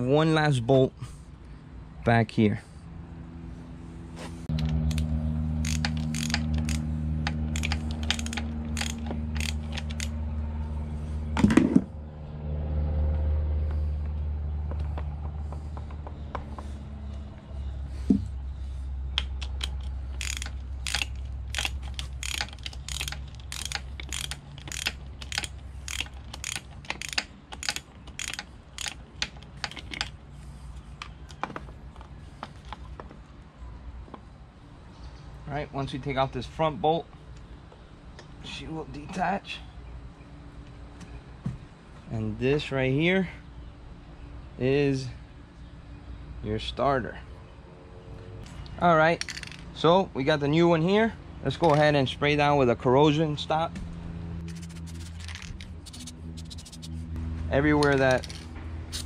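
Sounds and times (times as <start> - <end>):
ratchet clicking: 4.6 - 10.2, 19.2 - 30.1, 54.5 - 57.0, 57.8 - 59.0
steady low hum: 52.2 - 59.0.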